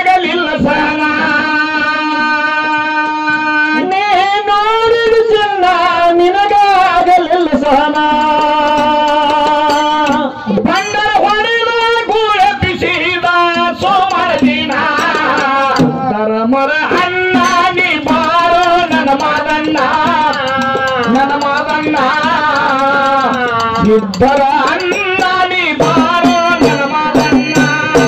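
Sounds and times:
man singing into microphone: 0.0s - 28.0s
hand drum: 7.5s - 28.0s.

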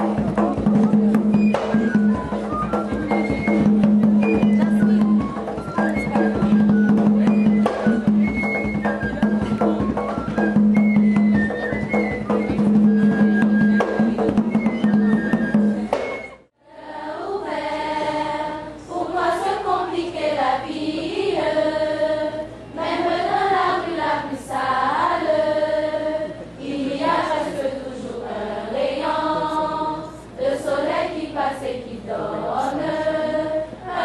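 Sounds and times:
traditional dance music with percussion: 0.0s - 16.5s
girls choir singing: 16.6s - 34.0s.

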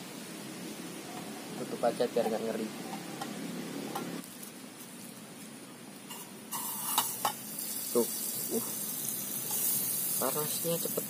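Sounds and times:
butter sizzling in a hot pan: 6.0s - 11.0s.

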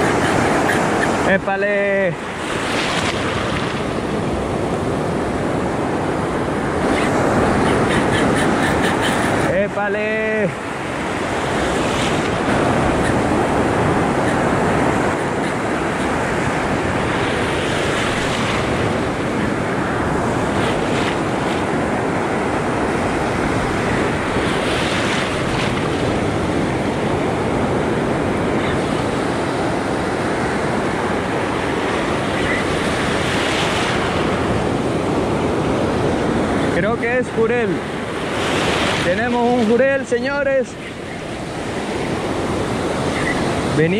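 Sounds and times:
surf washing in shallows: 0.0s - 43.9s
waves breaking: 0.0s - 43.9s
wind buffeting microphone: 10.4s - 40.0s.

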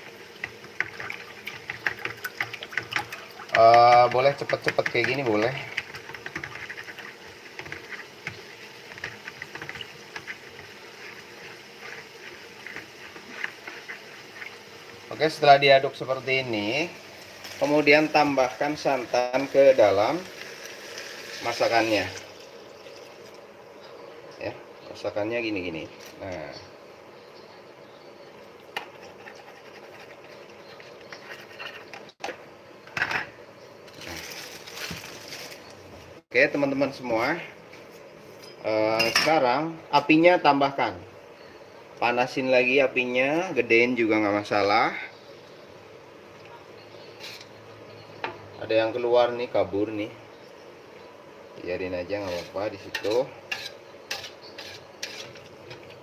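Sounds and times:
wooden spatula scraping a wok: 0.4s - 16.2s, 28.8s - 32.2s, 47.1s - 47.5s, 52.1s - 56.0s.

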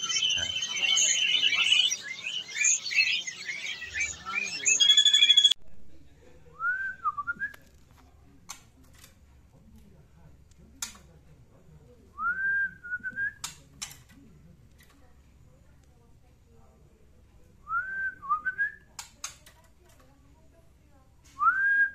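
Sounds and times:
whistled phrases: 0.0s - 5.6s, 6.6s - 7.6s, 12.2s - 13.5s, 17.6s - 18.9s, 21.4s - 21.9s.

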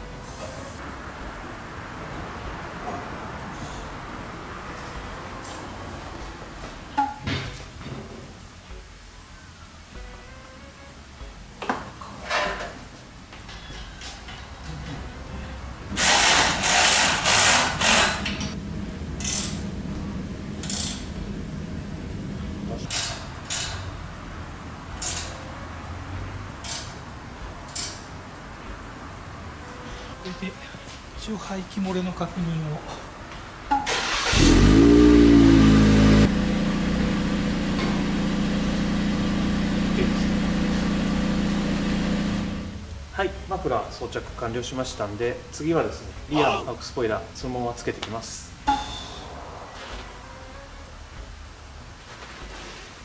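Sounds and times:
ratchet wrench clicking: 22.9s - 23.8s, 25.0s - 25.4s, 26.5s - 27.0s, 27.7s - 28.0s
car engine idling: 33.8s - 42.9s.

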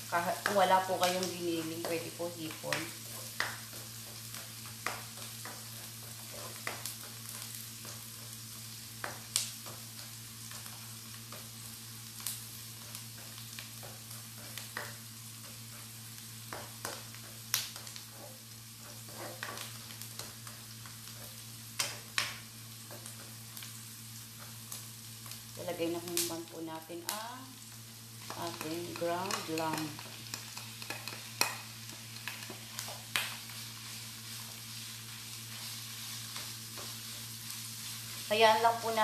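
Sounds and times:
garlic and onion sizzling in oil: 0.0s - 39.0s
spatula scraping a pan: 2.9s - 8.4s, 12.8s - 21.4s.

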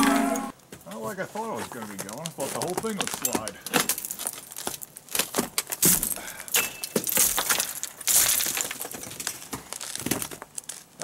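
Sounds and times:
ice cracking and clinking: 1.8s - 10.8s
ice crashing down: 7.1s - 10.4s.

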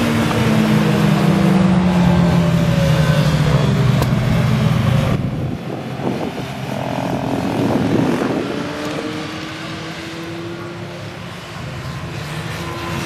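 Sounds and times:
motorcycles revving: 0.0s - 13.0s
motorcycle passing close by: 4.8s - 11.4s.

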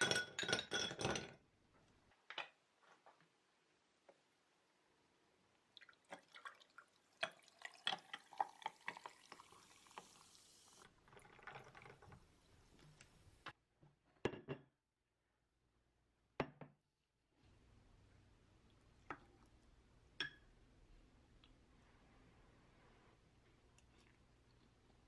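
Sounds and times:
soda fizzing over ice: 5.8s - 12.1s.

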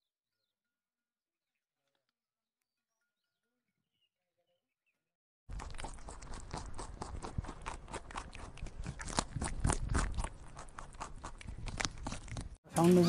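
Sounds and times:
koala chewing leaves: 5.5s - 13.0s.

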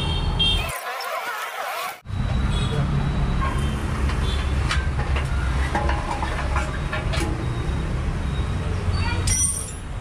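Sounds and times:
low rumble of street traffic: 2.0s - 10.0s.

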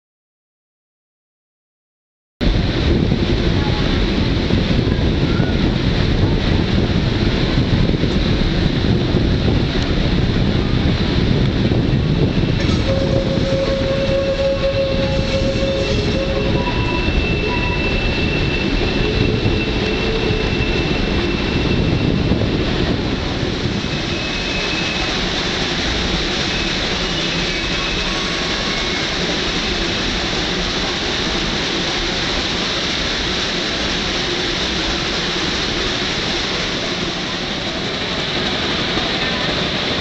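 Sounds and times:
train rumble: 2.4s - 40.0s
high wheel squeals: 12.6s - 22.3s, 23.9s - 25.3s, 26.3s - 29.9s.

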